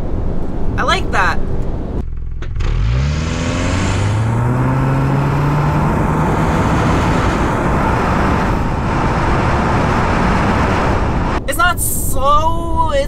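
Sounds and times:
tyre and wind road noise: 0.0 - 13.0
car engine accelerating: 1.5 - 11.5.

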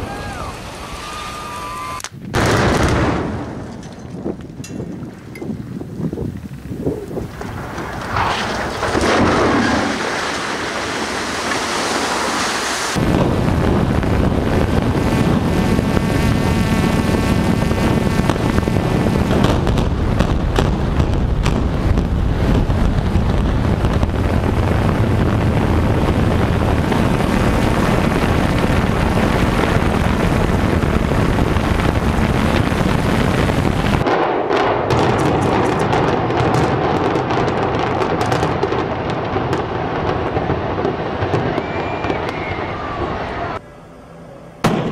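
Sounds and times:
tower collapse crash: 7.2 - 13.2
roar of building collapse: 7.2 - 16.6
sharp cracks: 14.7 - 29.5.

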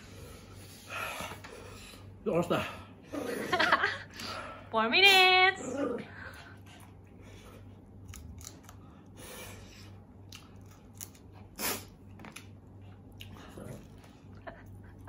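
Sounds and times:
chewing: 6.4 - 9.1, 9.9 - 14.8.

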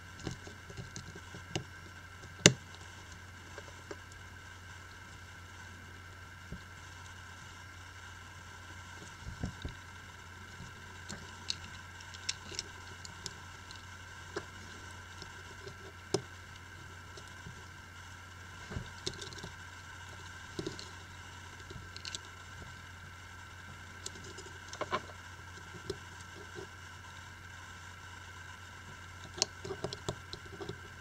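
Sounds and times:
steady low hum: 0.0 - 31.0
small clicks and taps: 21.6 - 22.7, 24.0 - 26.7, 29.2 - 31.0.

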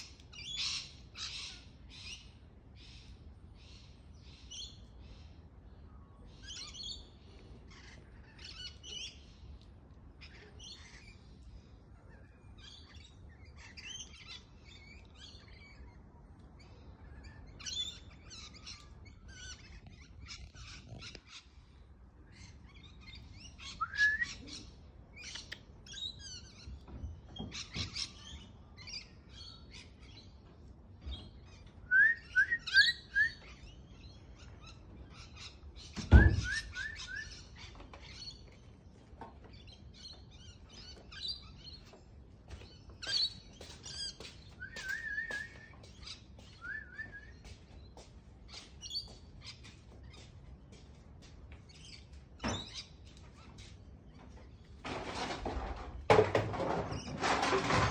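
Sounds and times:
birds chirping: 0.0 - 57.9.

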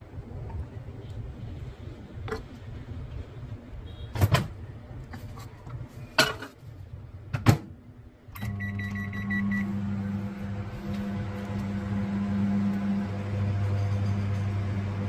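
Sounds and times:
microwave humming: 8.3 - 15.0.

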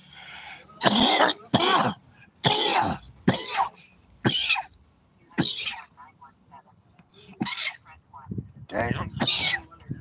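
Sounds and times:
man coughing: 0.8 - 4.4.

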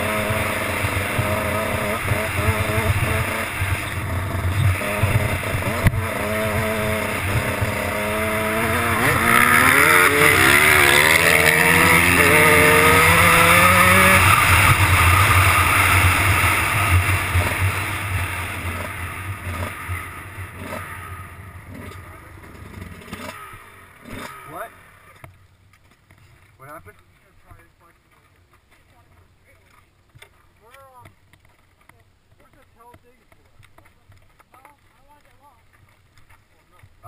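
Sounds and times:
dirt bike engine revving: 0.0 - 25.3.

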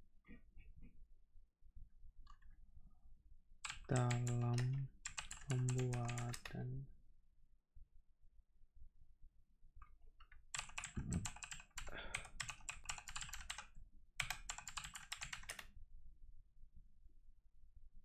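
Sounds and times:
rapid keyboard typing: 3.6 - 6.5, 10.5 - 15.6.

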